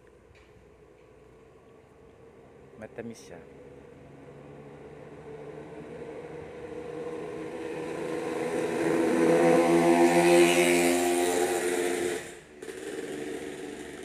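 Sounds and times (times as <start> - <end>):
vehicle engine humming: 3.4 - 14.0.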